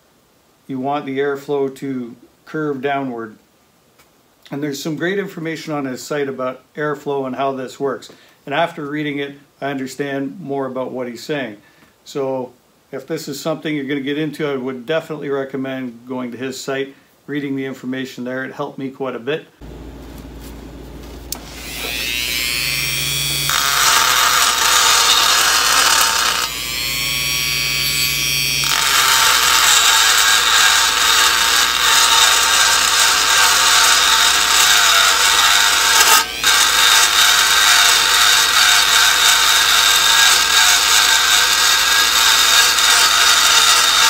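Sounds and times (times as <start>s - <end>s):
rotary tool whining freely: 19.6s - 44.0s
rotary tool grinding metal: 21.4s - 44.0s.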